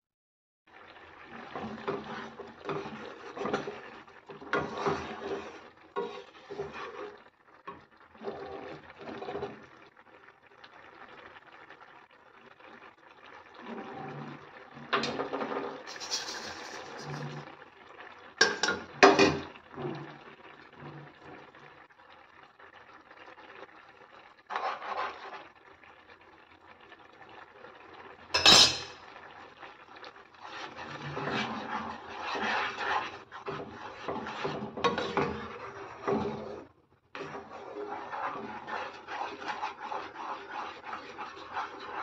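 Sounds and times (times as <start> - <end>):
spatula scraping a pan: 1.3 - 9.7, 15.0 - 17.5, 24.4 - 25.5, 30.3 - 42.0
utensils clattering against pan: 15.9 - 17.4, 18.4 - 19.4, 28.4 - 29.0.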